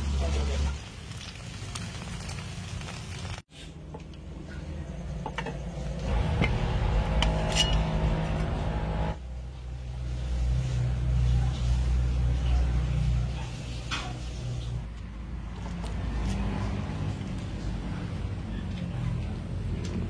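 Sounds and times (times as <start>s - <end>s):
steady low rumble: 5.7s - 11.0s
metal pot lid clinking: 7.2s - 8.0s.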